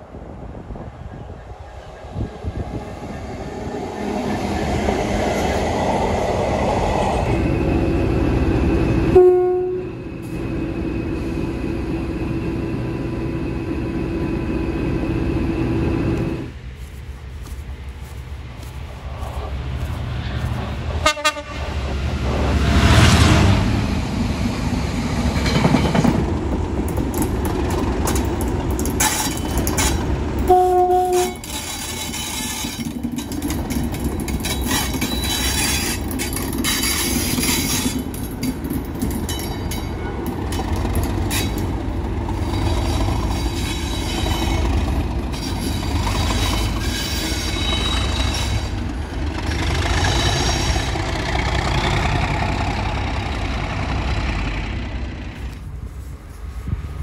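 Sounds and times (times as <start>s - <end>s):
diesel locomotive engine running: 0.0s - 57.0s
train horn blast: 9.1s - 10.0s, 21.0s - 21.8s, 30.5s - 31.5s
freight wagons rumbling past: 17.8s - 57.0s.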